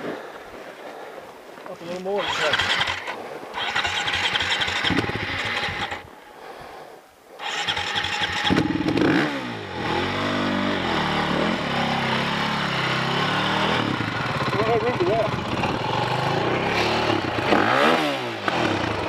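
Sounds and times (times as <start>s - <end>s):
dirt bike engine revving: 2.1s - 6.1s, 7.4s - 19.0s.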